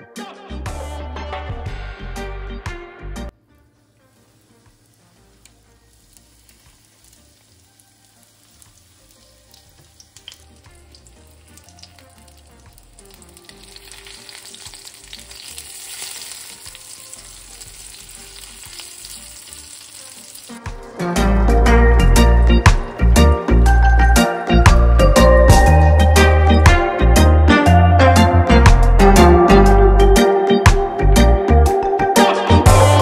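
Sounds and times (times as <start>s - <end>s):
food sizzling in oil: 3.9s - 21.2s.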